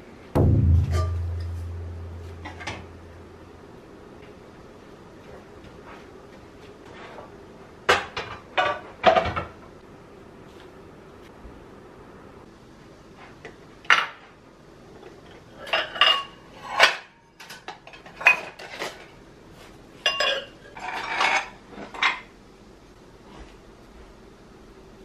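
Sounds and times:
dishes and cutlery clinking: 15.6 - 19.1, 20.0 - 22.3.

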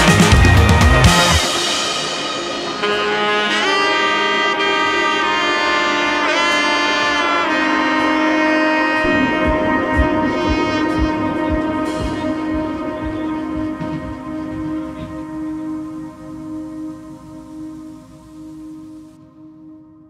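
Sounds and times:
melody with bending notes: 0.0 - 19.2
steady music beat: 9.0 - 19.2.

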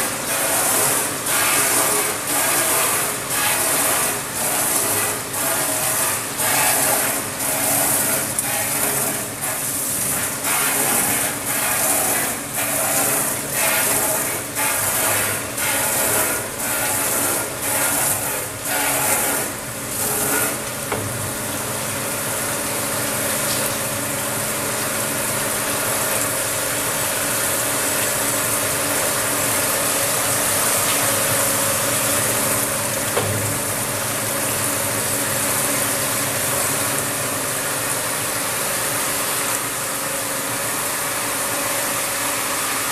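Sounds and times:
water spraying: 0.0 - 20.9
steady mechanical hum: 0.0 - 42.9.

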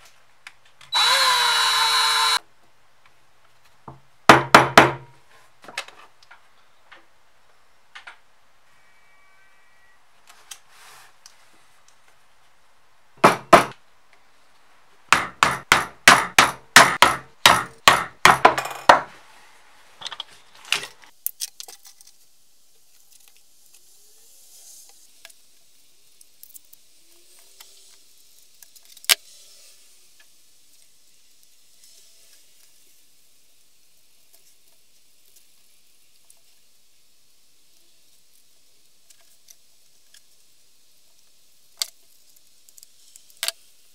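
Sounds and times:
hammer striking leather: 15.2 - 18.5.

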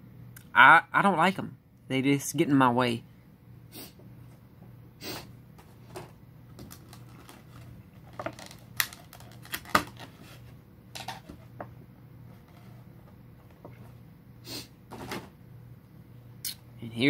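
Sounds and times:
faint low hum: 0.0 - 17.0
packaging clicks and rustles: 5.9 - 10.4.

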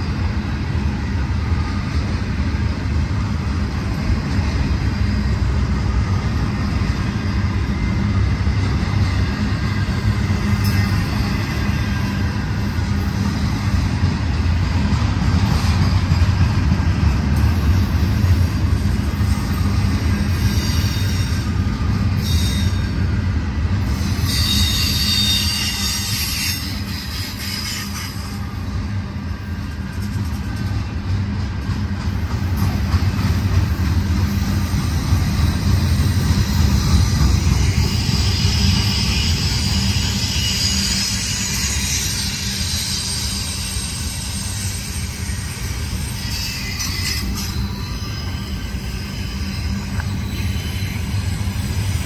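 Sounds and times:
train wheels rumbling on rails: 0.0 - 52.0
high-pitched wheel squeal: 20.3 - 23.1, 23.9 - 28.5, 35.9 - 52.0.

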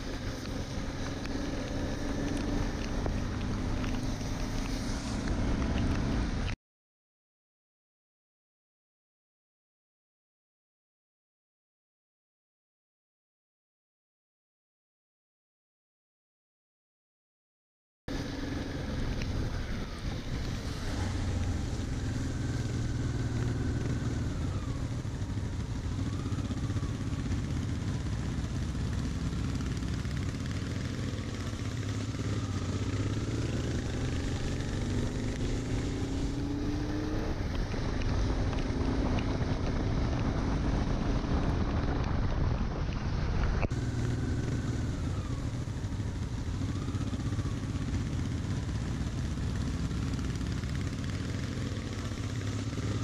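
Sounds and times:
tyres hissing on wet road: 0.0 - 6.4, 18.1 - 23.0
motorcycle engine running: 0.0 - 6.5, 18.1 - 53.0
wind: 0.0 - 6.6, 18.1 - 53.0.

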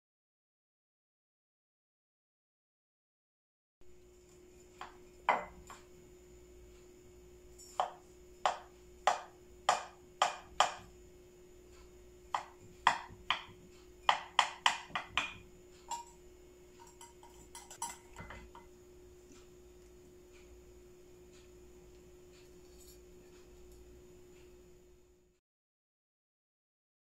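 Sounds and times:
faint steady hum: 3.8 - 25.4
metal server clinking on glass dish: 15.9 - 16.2, 16.8 - 18.6.

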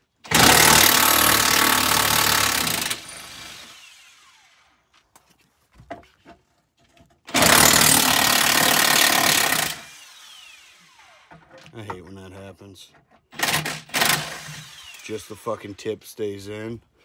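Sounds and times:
impact wrench running on bolt: 0.3 - 3.6, 7.3 - 9.9, 13.3 - 15.2.

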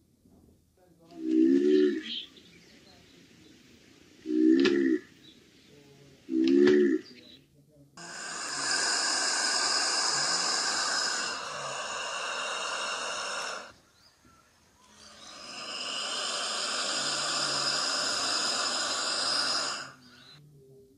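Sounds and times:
komodo dragon hissing: 8.0 - 13.8, 14.9 - 20.4.

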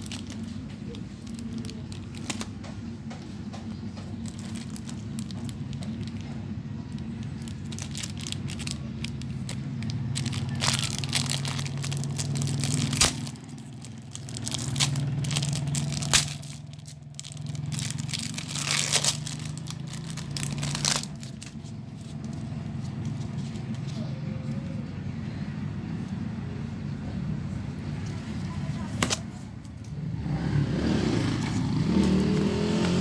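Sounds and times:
plastic wrapping crinkling: 0.0 - 2.7, 3.7 - 23.8
sharp plastic snaps: 10.2 - 21.6.

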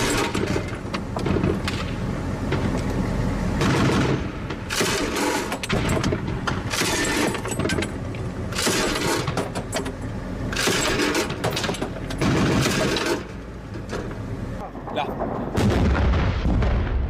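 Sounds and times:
vehicle engine rumble: 0.0 - 16.8
machine gun firing bursts: 3.6 - 6.0, 12.2 - 13.3.

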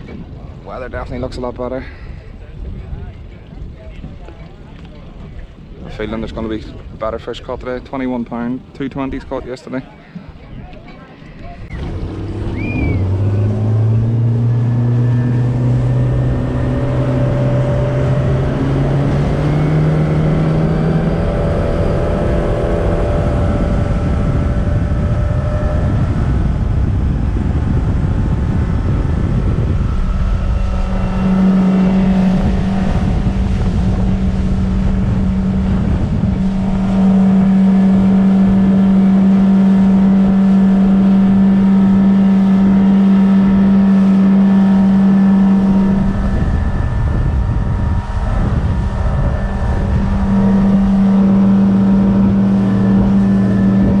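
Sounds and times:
outboard motor accelerating: 0.0 - 54.0
wind rumble on microphone: 0.0 - 54.0
hull noise over chop: 11.6 - 54.0.

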